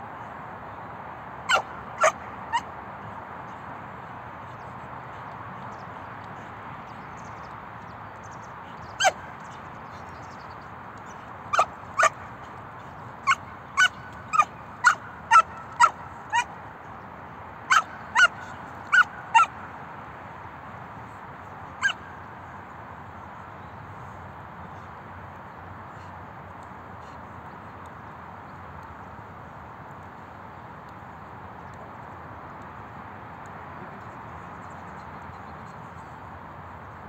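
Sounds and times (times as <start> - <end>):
puppy barking: 1.5 - 2.6, 9.0 - 9.2, 11.5 - 12.2, 13.2 - 16.5, 17.7 - 19.5.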